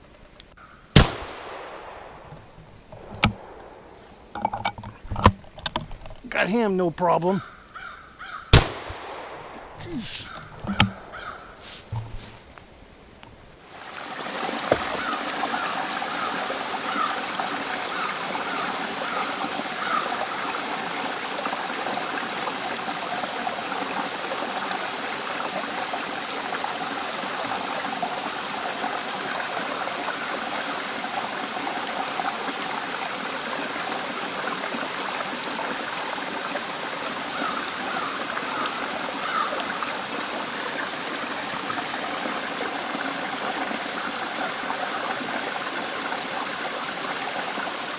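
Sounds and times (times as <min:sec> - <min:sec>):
waterfall rushing: 0:08.5 - 0:12.3.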